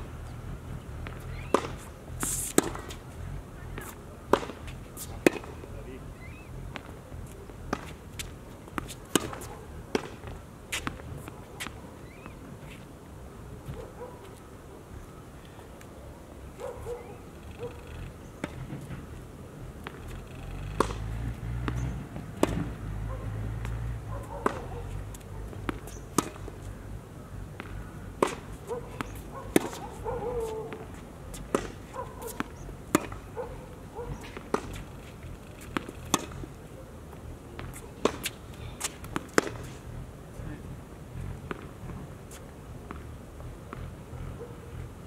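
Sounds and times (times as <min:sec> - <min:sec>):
tennis ball bouncing: 0:00.2 - 0:12.4, 0:17.4 - 0:19.1, 0:19.8 - 0:26.6, 0:27.5 - 0:36.6, 0:37.6 - 0:39.8
racket striking tennis ball: 0:01.0 - 0:03.1, 0:03.7 - 0:05.6, 0:07.7 - 0:12.4, 0:20.7 - 0:26.6, 0:27.6 - 0:33.4, 0:34.0 - 0:36.5, 0:37.6 - 0:39.8.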